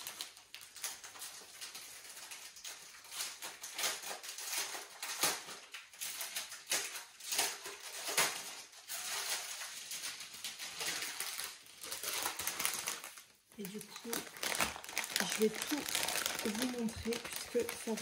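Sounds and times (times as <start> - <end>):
plastic bag rustling: 0.0 - 18.0.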